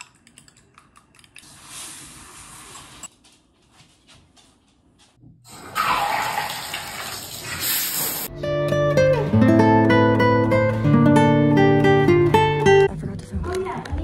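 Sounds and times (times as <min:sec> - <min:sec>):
water rushing into a bathtub: 0:05.5 - 0:08.3.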